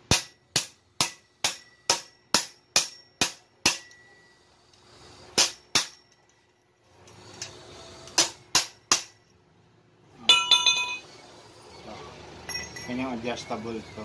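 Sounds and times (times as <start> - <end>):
hammer striking metal tube: 0.0 - 4.2, 5.3 - 6.3, 8.1 - 9.3, 10.3 - 11.0.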